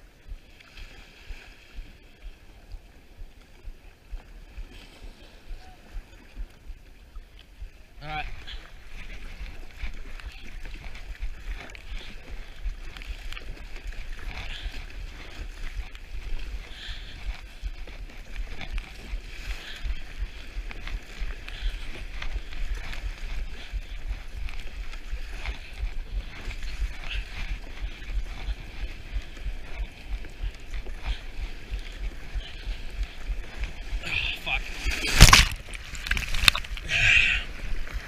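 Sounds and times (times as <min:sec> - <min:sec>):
water splashing around kayak: 0:00.0 - 0:38.0
wind rumbling on microphone: 0:00.0 - 0:38.0
sharp water splashes: 0:08.0 - 0:38.0.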